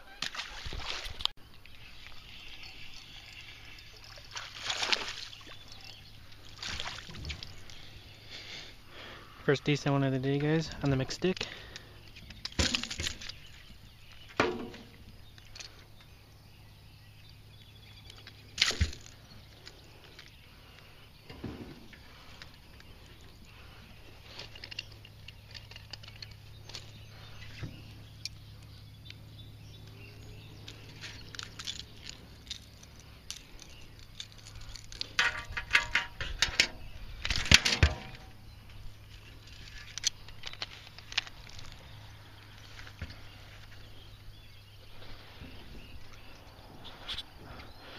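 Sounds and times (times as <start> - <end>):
fishing tackle clicking and rattling: 24.4 - 27.0, 30.6 - 38.3, 39.1 - 43.1.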